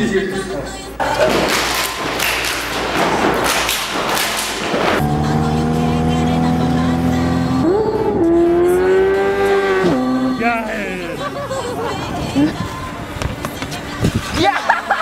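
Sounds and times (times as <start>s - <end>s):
music: 0.0s - 4.2s, 9.8s - 15.0s
crowd noise: 0.0s - 5.0s, 10.1s - 15.0s
motorcycle engines revving: 4.4s - 13.8s.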